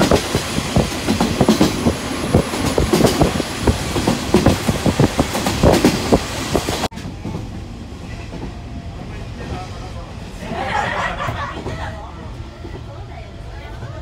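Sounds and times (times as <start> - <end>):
train wheels clattering on rails: 0.0 - 9.8, 10.6 - 13.1
railcar interior rumble: 0.0 - 14.0.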